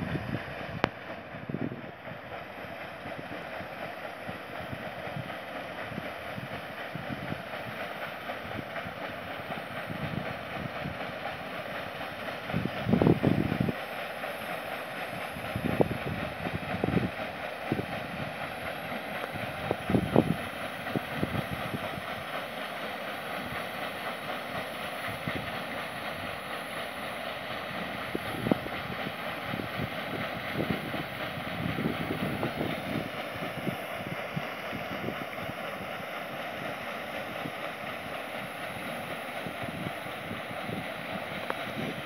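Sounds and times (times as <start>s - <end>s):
wind on microphone: 0.0s - 2.2s, 12.5s - 13.8s, 15.4s - 18.5s, 19.2s - 22.1s, 27.7s - 35.9s, 39.4s - 42.0s
paddle wheels churning water: 0.0s - 42.0s.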